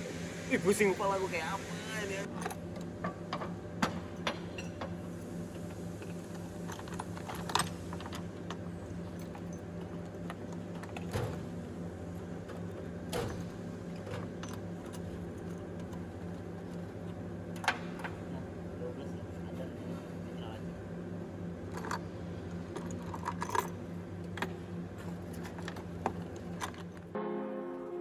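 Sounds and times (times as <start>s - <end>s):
steady machine hum: 0.0s - 28.0s.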